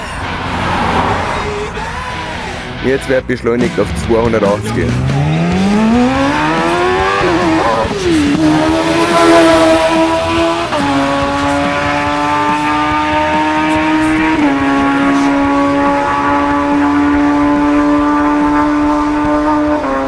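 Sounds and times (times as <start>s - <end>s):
race engines revving high: 0.0s - 20.0s.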